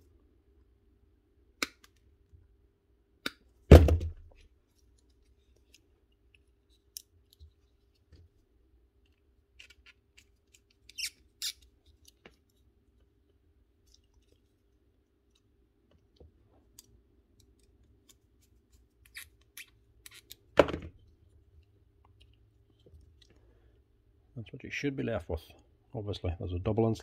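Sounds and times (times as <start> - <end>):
pliers set down on workbench: 20.6 - 21.0.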